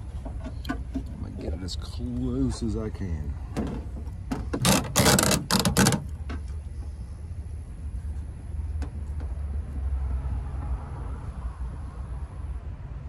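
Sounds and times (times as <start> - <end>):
plastic board clattering: 3.6 - 6.1.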